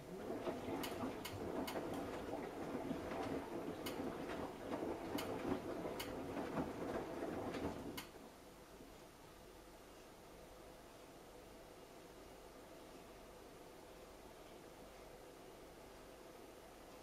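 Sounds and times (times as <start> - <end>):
washing machine drum tumbling: 0.0 - 8.3.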